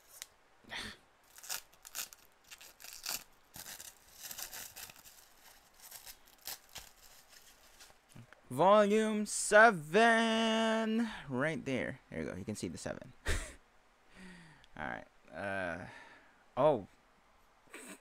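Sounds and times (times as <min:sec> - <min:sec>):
plastic wrap crinkling and tearing: 0:01.2 - 0:08.2.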